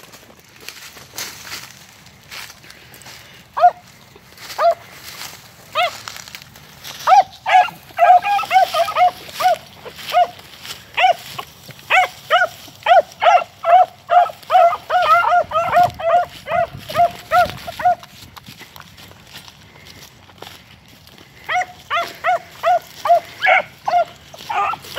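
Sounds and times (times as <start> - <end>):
dogs baying: 3.5 - 5.0, 5.7 - 6.1, 6.8 - 18.1, 21.3 - 24.9.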